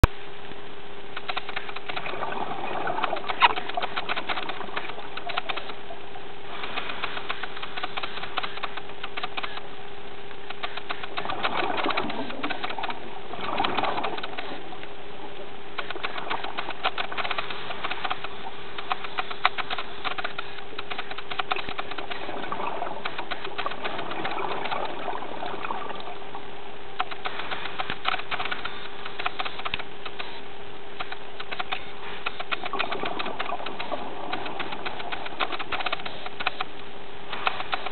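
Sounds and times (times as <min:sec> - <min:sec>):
crackle of sharp clicks: 0:00.0 - 0:26.2, 0:27.0 - 0:30.4, 0:31.0 - 0:37.9
steady hum: 0:00.0 - 0:37.9
rushing water swell: 0:02.0 - 0:07.7, 0:11.0 - 0:27.9.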